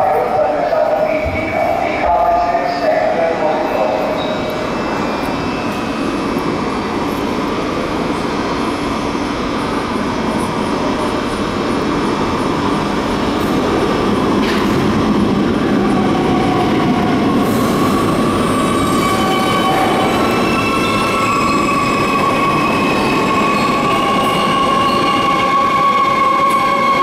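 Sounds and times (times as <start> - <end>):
train mechanical noise: 0.0 - 16.3.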